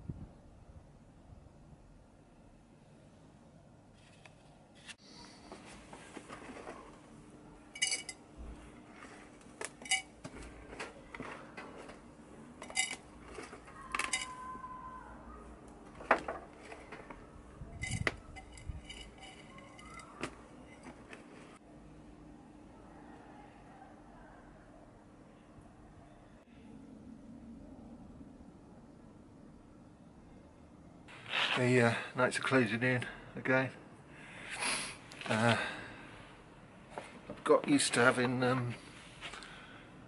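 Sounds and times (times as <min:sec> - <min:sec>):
terracotta pots clinking: 0:07.8 - 0:08.2, 0:09.6 - 0:14.6, 0:15.9 - 0:21.6.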